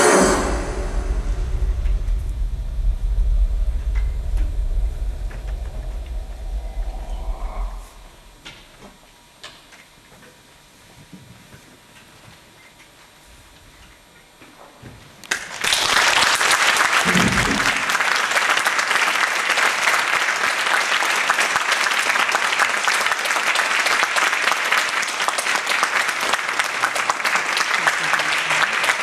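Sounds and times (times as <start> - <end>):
audience applauding: 15.3 - 29.0.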